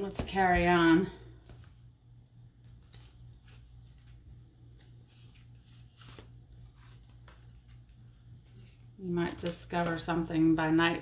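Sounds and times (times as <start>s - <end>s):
low steady hum: 0.0s - 11.0s
paper rustling: 2.6s - 10.0s.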